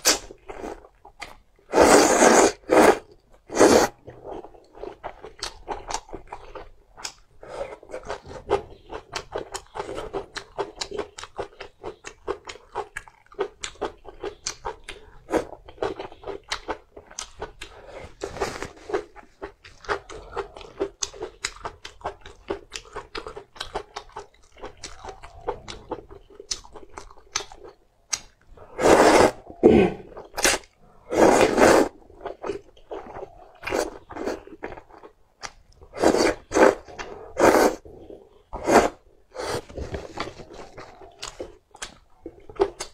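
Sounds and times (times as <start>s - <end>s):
noodle slurps: 1.7s - 4.0s, 28.7s - 32.0s, 35.9s - 37.8s
wet chewing and smacking: 3.2s - 28.7s, 31.9s - 37.3s, 39.6s - 42.9s.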